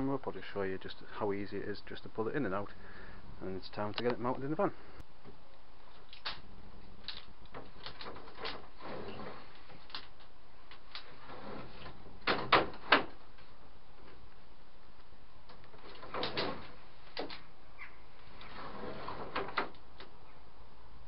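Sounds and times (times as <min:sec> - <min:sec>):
wooden knocks and clunks: 0:11.2 - 0:14.2.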